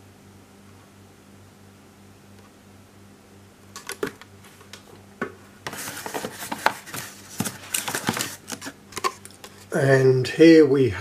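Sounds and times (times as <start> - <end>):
cardboard rustling and scraping: 5.6 - 9.8.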